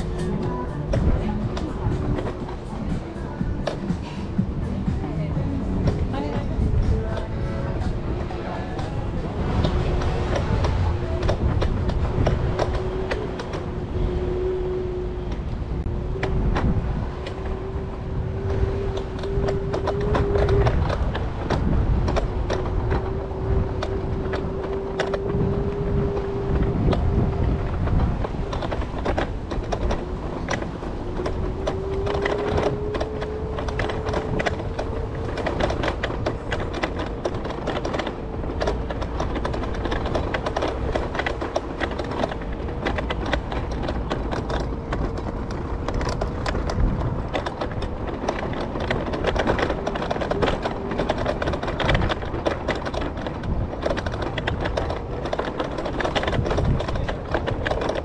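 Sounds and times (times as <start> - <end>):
electric scooter motor whine: 9.6 - 28.5, 29.1 - 43.5
scooter rattling over surface: 14.9 - 58.0.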